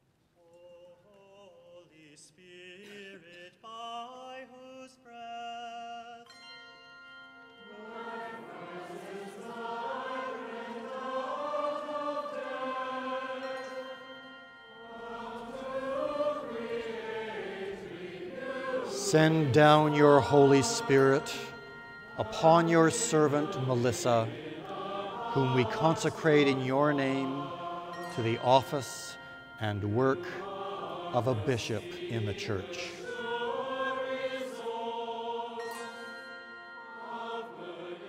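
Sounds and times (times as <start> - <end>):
choir and congregation singing: 7.6 - 38.0.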